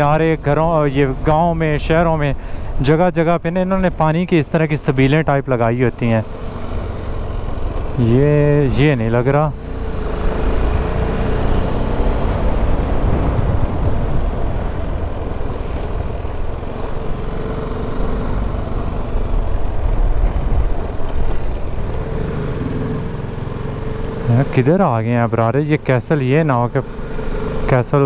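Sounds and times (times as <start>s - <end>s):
motorcycle engine running: 0.0s - 28.0s
riding noise rumble: 12.2s - 17.2s.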